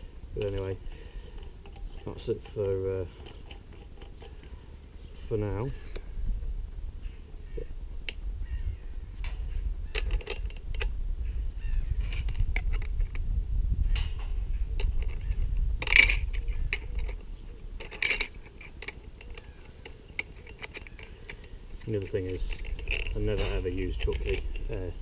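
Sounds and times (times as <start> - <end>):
steady low rumble: 0.0 - 20.1
metallic clicks and clinks: 9.2 - 10.9, 14.0 - 17.2, 17.8 - 24.9.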